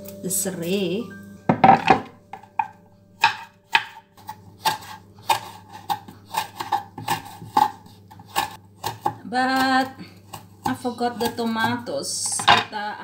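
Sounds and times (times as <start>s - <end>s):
knife chopping on wooden board: 1.7s - 12.6s.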